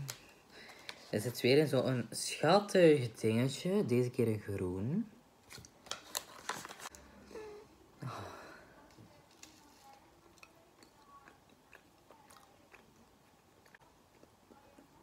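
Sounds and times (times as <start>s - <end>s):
paper cup crinkling: 5.5s - 7.0s
wet chewing: 9.3s - 15.0s.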